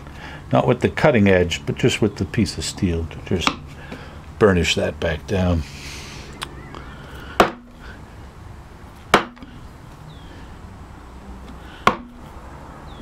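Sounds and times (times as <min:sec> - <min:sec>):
wooden mallet striking gouge: 0:03.4 - 0:03.6, 0:07.4 - 0:07.8, 0:09.1 - 0:09.5, 0:11.8 - 0:12.2.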